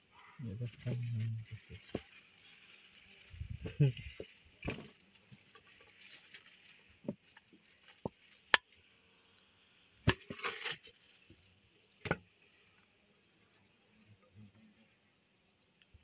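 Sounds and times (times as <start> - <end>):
faint high hiss: 0.0 - 7.1.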